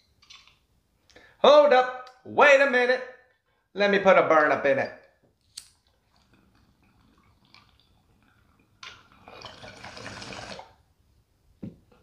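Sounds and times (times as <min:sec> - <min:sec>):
water bubbling in a bong: 0:06.0 - 0:10.8.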